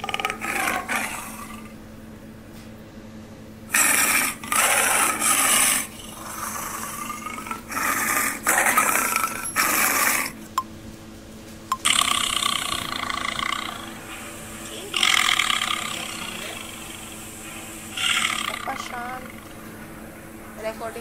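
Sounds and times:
tiger growling: 0:00.0 - 0:01.8, 0:03.7 - 0:10.4, 0:11.8 - 0:19.7.

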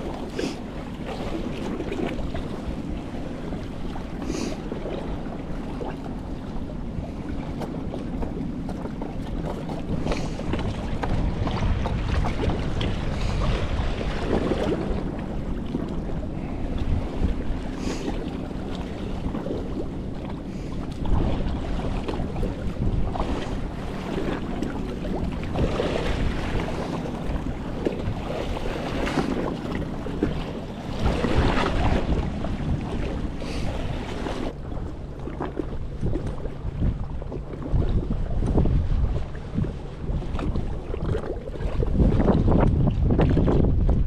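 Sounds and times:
steady low hum: 0:00.0 - 0:40.9
waves splashing against boat: 0:00.0 - 0:44.0
wind buffeting microphone: 0:00.0 - 0:44.0.

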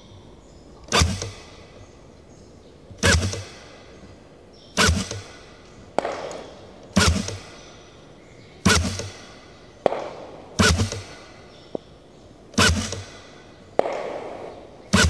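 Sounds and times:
gunshots: 0:00.9 - 0:01.7, 0:03.0 - 0:04.0, 0:04.8 - 0:07.8, 0:08.6 - 0:11.5, 0:12.5 - 0:15.0.

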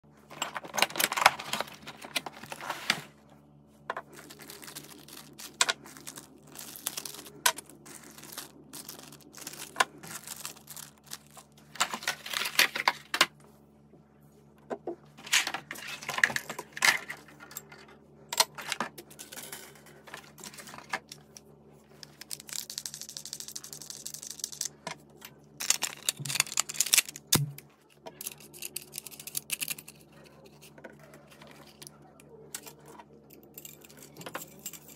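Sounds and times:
rustling of packaging: 0:00.2 - 0:03.3, 0:04.0 - 0:13.3, 0:25.6 - 0:27.4.

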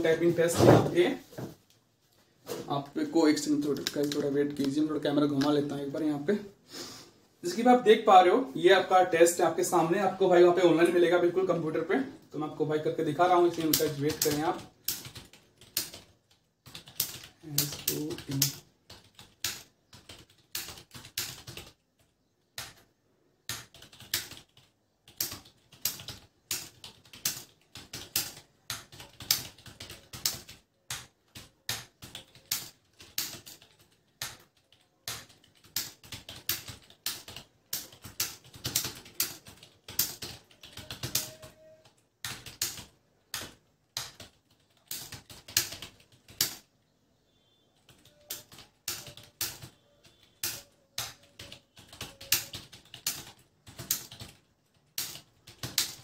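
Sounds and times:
fast typing on keyboard: 0:03.4 - 0:05.9, 0:13.0 - 0:22.9, 0:23.5 - 0:46.7, 0:47.8 - 0:56.0.

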